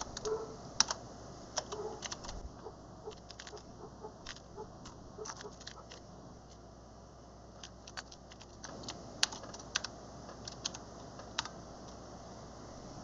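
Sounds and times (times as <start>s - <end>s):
computer keyboard typing: 0.0s - 1.0s, 1.6s - 2.4s, 3.1s - 6.6s, 7.6s - 12.0s.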